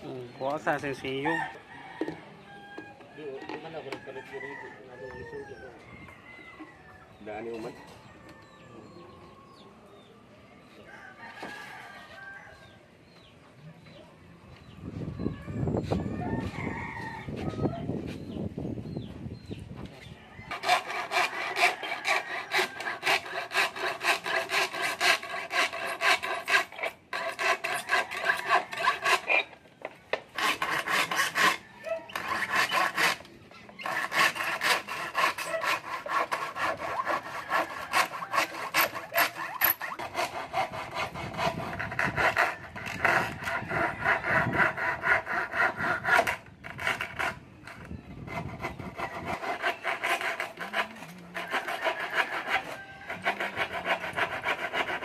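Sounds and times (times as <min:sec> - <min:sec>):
hand tool rasping: 0:20.5 - 0:29.6, 0:30.2 - 0:55.0.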